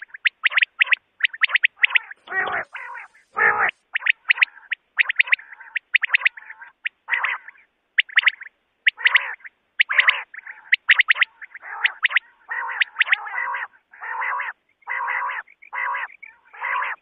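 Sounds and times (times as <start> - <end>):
quail calling sharp notes: 0.0 - 17.0.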